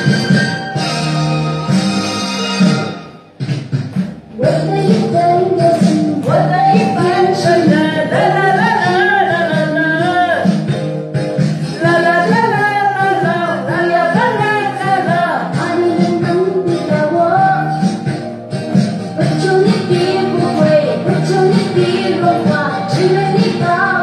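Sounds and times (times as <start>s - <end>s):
backing music: 0.0s - 24.0s
person singing: 4.4s - 10.7s, 11.6s - 18.3s, 19.2s - 24.0s.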